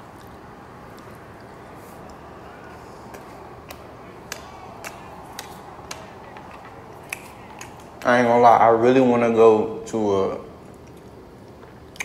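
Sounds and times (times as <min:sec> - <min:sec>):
faint voices: 0:01.0 - 0:09.3.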